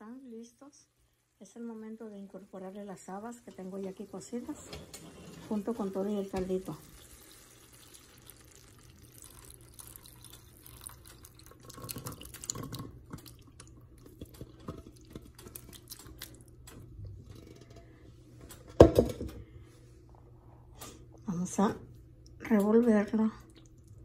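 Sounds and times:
liquid splashing and plopping: 6.4 - 16.8.

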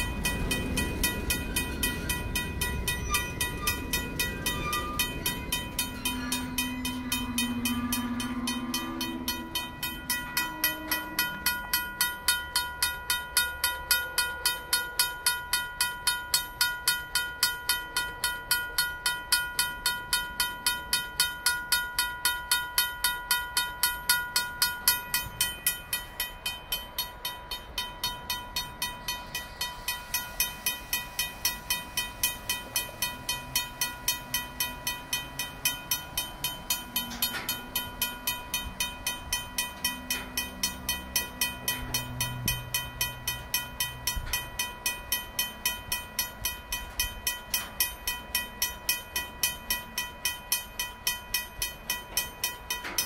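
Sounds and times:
low drone: 0.0 - 12.0
railroad crossing bell ringing: 0.0 - 53.0.

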